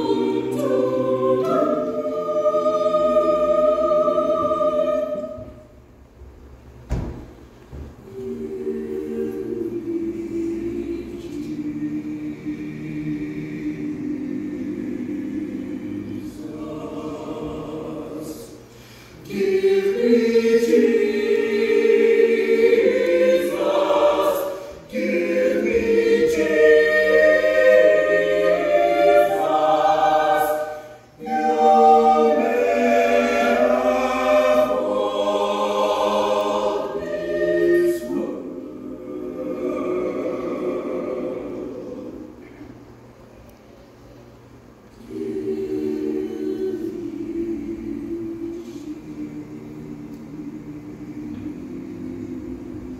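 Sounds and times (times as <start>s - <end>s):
a cappella choir singing: 0.0s - 6.1s, 7.0s - 43.4s, 44.5s - 52.9s.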